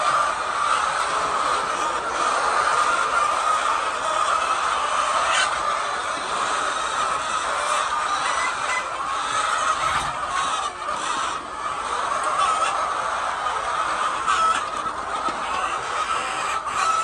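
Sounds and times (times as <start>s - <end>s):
hens clucking: 0.0s - 17.0s.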